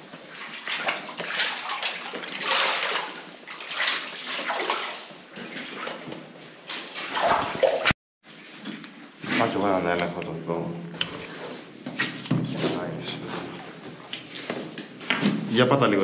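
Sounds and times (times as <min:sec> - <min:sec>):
footsteps wading through water: 0:00.0 - 0:07.9.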